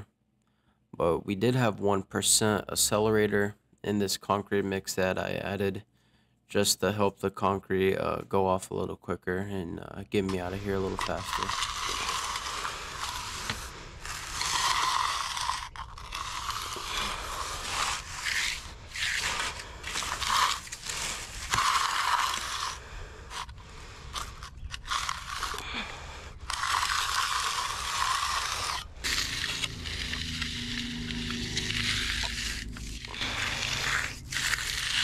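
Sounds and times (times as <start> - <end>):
trowel scraping concrete: 10.3 - 35.0.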